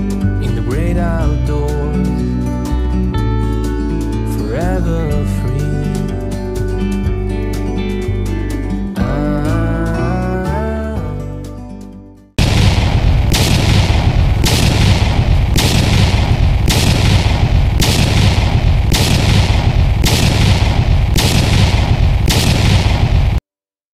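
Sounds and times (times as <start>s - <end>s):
fireworks bang: 12.4s - 23.4s
fireworks crackling: 12.4s - 23.4s
heavy low rumble: 12.4s - 23.4s.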